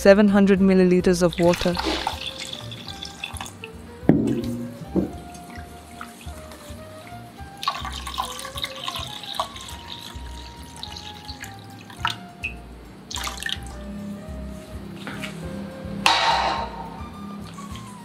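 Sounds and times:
light background music: 0.0 - 18.0
water pouring into a pot: 1.3 - 3.7, 5.2 - 13.8.

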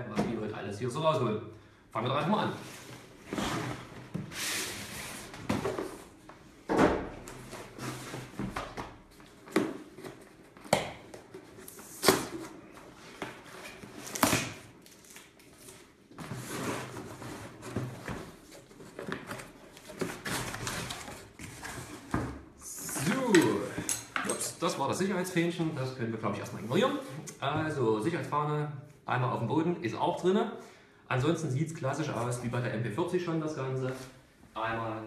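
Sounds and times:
cardboard rustling and scraping: 15.5 - 23.3.

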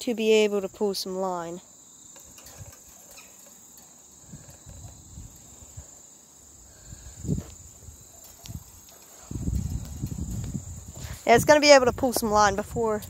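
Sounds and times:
crickets chirring: 0.0 - 13.0
low bumps: 8.4 - 13.0.

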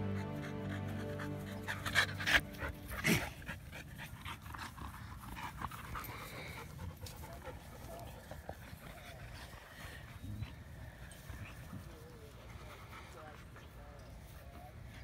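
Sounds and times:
background music: 0.0 - 3.5
dog panting: 0.0 - 14.6.

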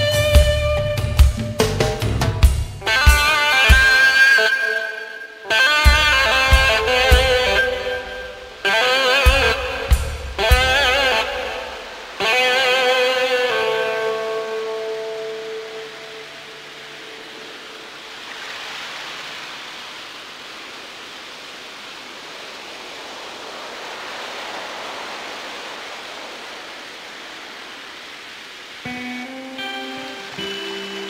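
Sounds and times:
pitched instrumental notes: 2.8 - 11.9
rushing surf-like noise effect: 2.8 - 31.0.

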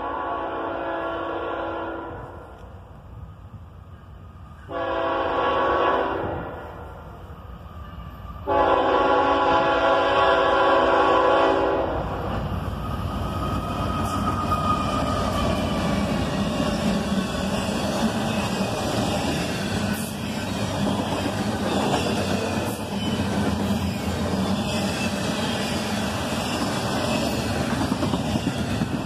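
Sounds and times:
locomotive air horn: 0.0 - 2.4, 4.7 - 7.0, 8.4 - 12.0
rumble of passing train: 0.0 - 29.0.

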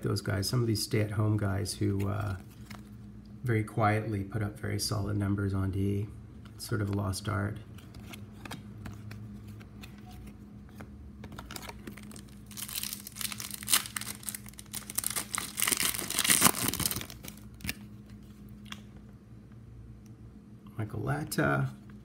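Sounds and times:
cards being handled: 1.7 - 3.0, 6.4 - 18.9
card pack wrapper tearing: 11.3 - 17.9.

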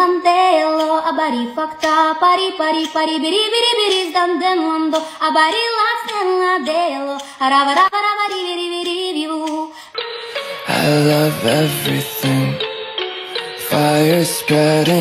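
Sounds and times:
woman singing wordless runs: 0.0 - 9.8.

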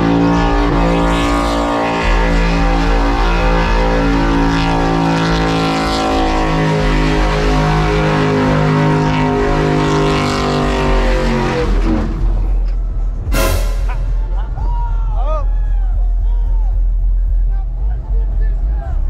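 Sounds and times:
pickup engine at high revs: 0.0 - 12.4
tyres spinning in burnout: 0.0 - 13.0.

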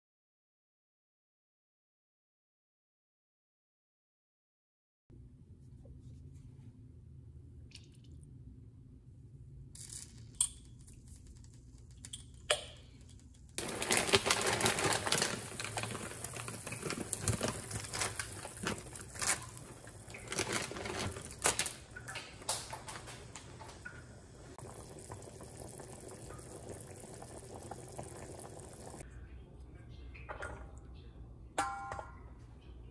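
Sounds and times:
pasta clicking and splashing: 9.8 - 29.0
water boiling and bubbling: 13.5 - 29.1.

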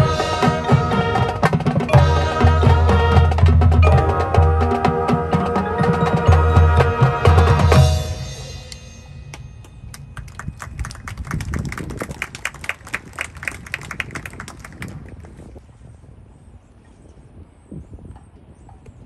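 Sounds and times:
marching band chord: 0.0 - 10.4.

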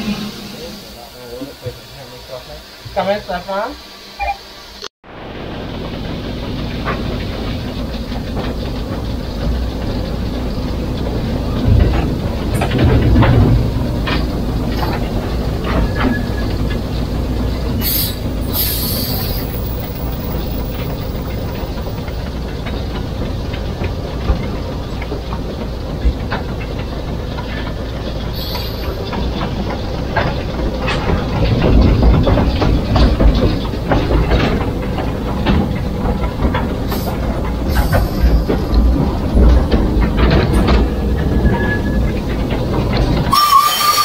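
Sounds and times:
short high steam hisses: 0.0 - 4.9, 17.8 - 19.9, 28.4 - 29.0, 43.3 - 44.0
steam locomotive rumbling: 0.0 - 44.0.

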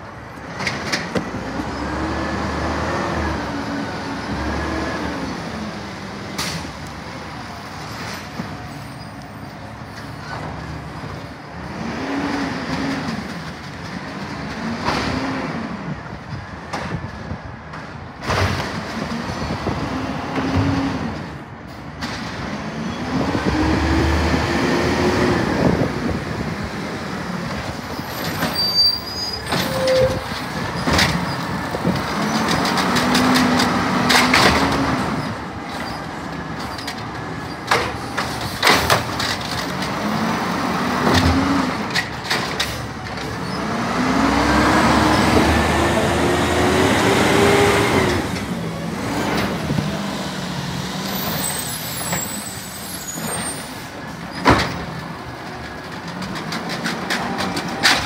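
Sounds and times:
diesel engine revving: 1.2 - 7.4, 11.6 - 16.1, 22.3 - 28.2, 30.2 - 58.0
bins banging and clanking: 27.5 - 43.6, 53.2 - 58.0.

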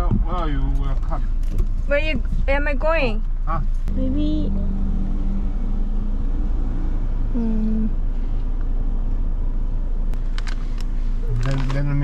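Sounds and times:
motor vehicle rumble: 0.0 - 12.0
short vocal sound: 7.3 - 8.0.

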